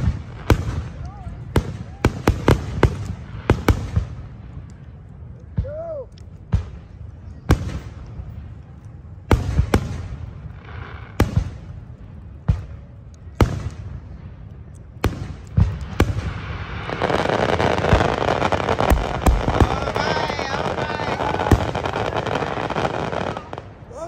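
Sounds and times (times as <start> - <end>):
continuous firework noise: 0.0 - 24.0
firework shells bursting: 15.1 - 23.7.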